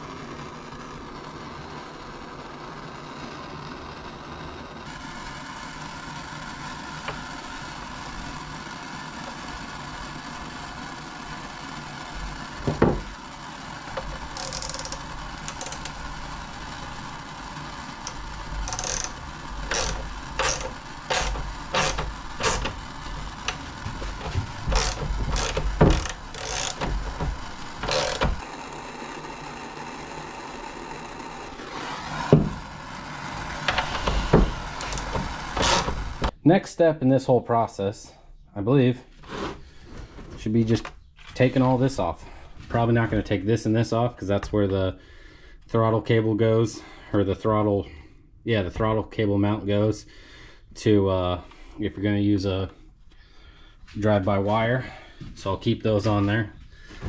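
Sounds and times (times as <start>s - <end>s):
hand tool rasping strokes: 14.0s - 16.0s, 18.0s - 28.5s, 33.6s - 36.3s.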